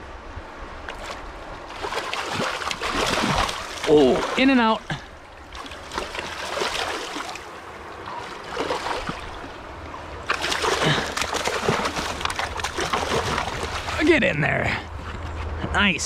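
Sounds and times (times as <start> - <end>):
fish thrashing and splashing: 0.9 - 4.5, 5.5 - 7.5, 8.2 - 9.6, 10.2 - 14.0.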